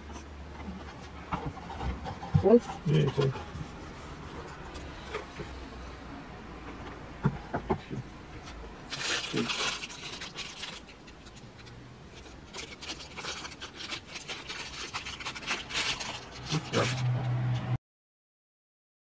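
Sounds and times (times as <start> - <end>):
plastic wrapping crinkling: 8.4 - 17.4.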